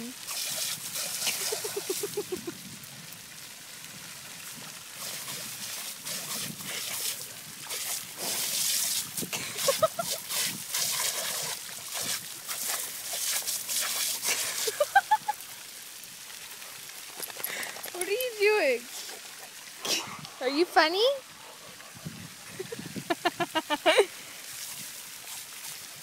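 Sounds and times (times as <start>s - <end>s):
water jet spraying and splattering: 0.0s - 26.0s
dog snapping and lapping water: 0.2s - 2.4s, 4.4s - 14.9s, 16.6s - 18.2s.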